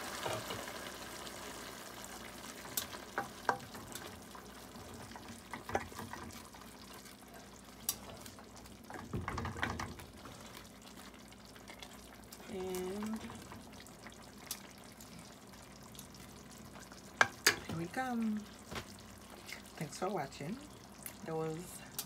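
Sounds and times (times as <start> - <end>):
food sizzling in a pan: 0.0 - 22.0
wooden spoon stirring: 2.6 - 14.2.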